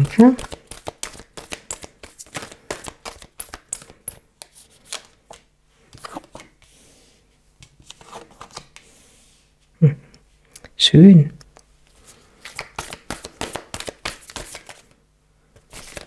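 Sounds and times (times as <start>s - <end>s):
cards being shuffled: 0.0s - 6.8s, 7.6s - 9.0s, 11.9s - 15.0s, 15.6s - 16.0s.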